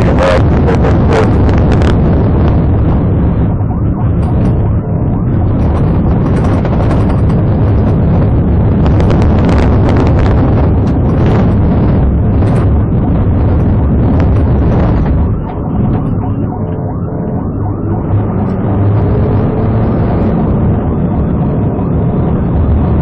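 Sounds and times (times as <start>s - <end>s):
car engine and tyre rumble: 0.0s - 23.0s.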